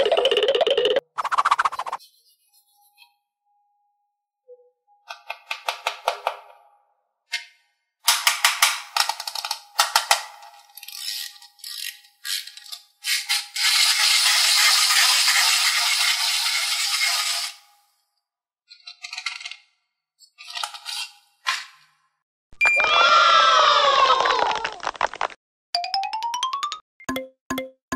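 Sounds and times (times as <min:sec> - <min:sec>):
plastic toy rattling: 0:09.1 - 0:17.4.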